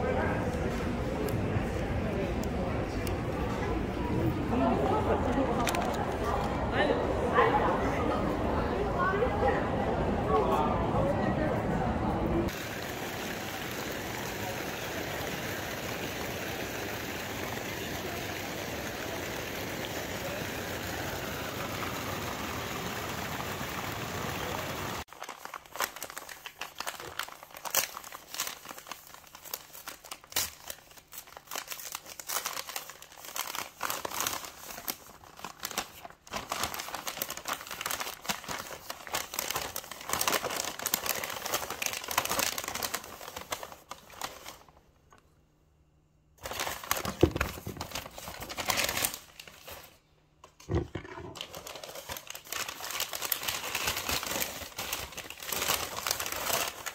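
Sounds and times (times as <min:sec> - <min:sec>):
fountain water splashing: 0:12.5 - 0:25.0
tissue paper crinkling: 0:25.0 - 0:44.8, 0:46.4 - 0:50.0, 0:51.4 - 0:56.9.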